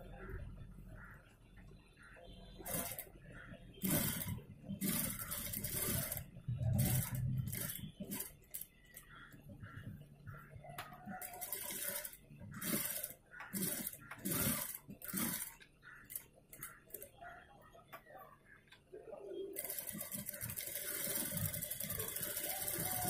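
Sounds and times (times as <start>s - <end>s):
sewing machine stitching: 2.6s - 3.1s, 3.8s - 9.1s, 11.0s - 17.1s, 19.6s - 23.0s.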